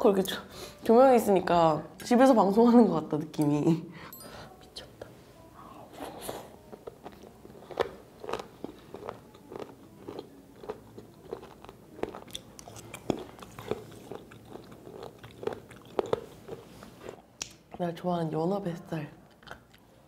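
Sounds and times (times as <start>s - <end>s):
sharp clicking chewing: 6.8s - 16.6s, 19.3s - 19.9s.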